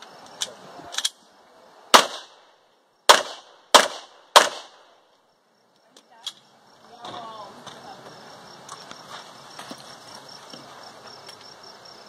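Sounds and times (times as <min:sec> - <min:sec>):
pistol shots with echo: 0:01.9 - 0:02.4, 0:03.1 - 0:04.9.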